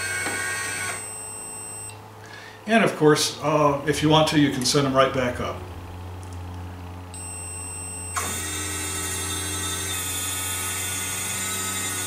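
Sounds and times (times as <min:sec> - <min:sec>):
motor starting click: 0:00.0 - 0:01.1, 0:08.1 - 0:12.0
electric motor whine: 0:00.0 - 0:01.9, 0:07.2 - 0:12.0
low steady hum: 0:00.0 - 0:12.0.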